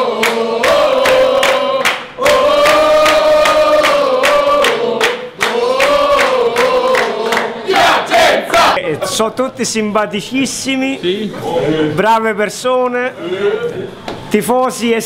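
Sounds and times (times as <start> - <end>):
steady hand-clapping: 0.0 - 8.7
sports fans chanting: 0.0 - 8.8.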